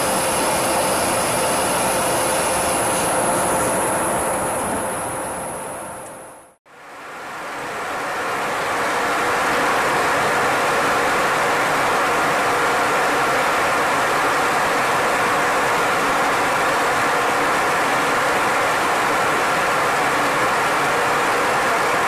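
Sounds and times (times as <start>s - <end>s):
jet aircraft drone: 0.0s - 6.6s.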